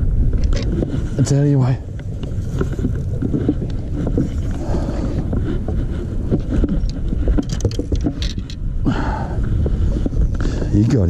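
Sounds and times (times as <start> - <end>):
wind buffeting microphone: 0.0 - 11.0
small clicks and knocks: 6.3 - 8.6.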